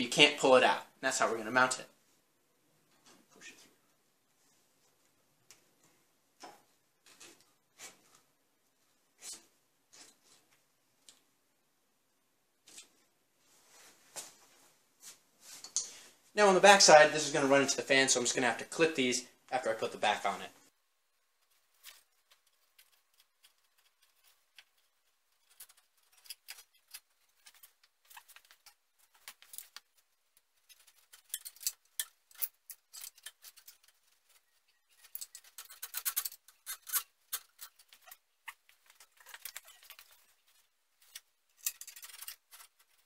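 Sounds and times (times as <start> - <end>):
plastic and metal clicks and rattles: 30.6 - 43.0.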